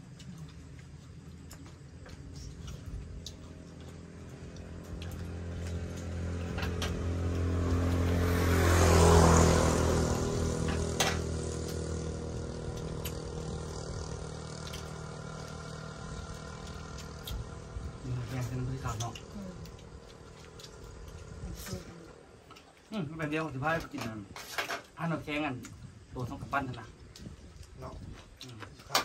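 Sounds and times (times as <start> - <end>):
vehicle engine passing by: 2.3 - 22.5.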